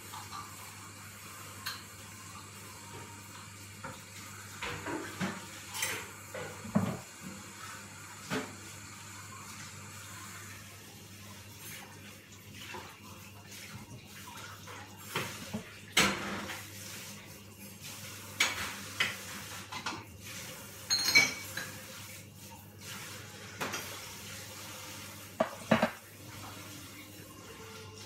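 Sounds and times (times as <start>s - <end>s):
dishes and cutlery clinking: 4.6s - 7.0s, 20.8s - 21.9s, 25.4s - 26.0s
porcelain dish set on steel counter: 20.8s - 22.0s, 25.4s - 28.0s.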